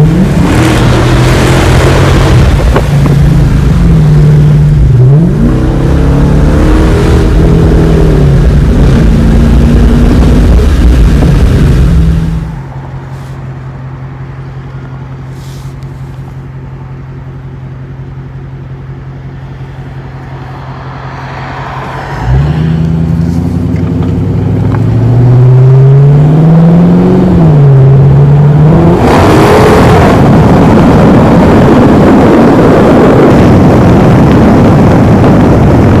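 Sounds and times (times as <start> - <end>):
wind on microphone: 0.0 - 12.6, 28.7 - 36.0
car exhaust drone and acceleration: 0.0 - 36.0.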